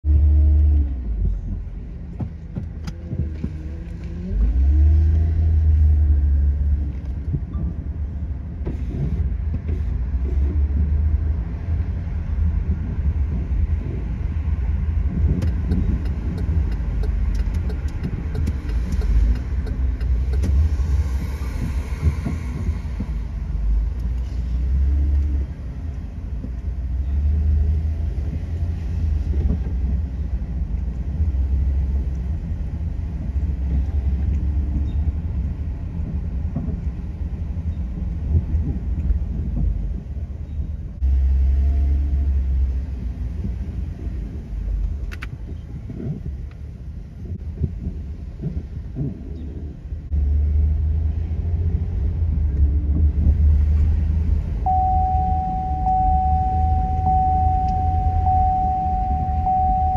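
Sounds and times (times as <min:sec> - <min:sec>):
car engine and road noise: 0:00.0 - 0:59.9
light ticks: 0:15.3 - 0:21.4.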